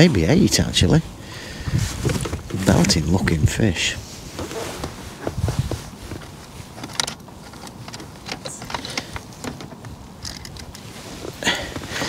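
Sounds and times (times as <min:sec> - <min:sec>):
fishing tackle knocks and rustling: 0:01.6 - 0:03.4, 0:04.3 - 0:12.0.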